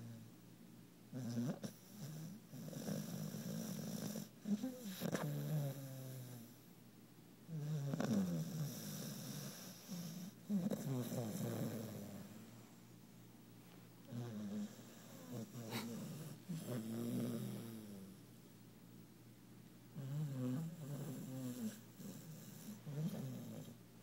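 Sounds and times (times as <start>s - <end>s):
puppy snoring loudly: 1.1s - 6.6s, 7.5s - 12.4s, 14.1s - 18.2s, 20.0s - 23.8s.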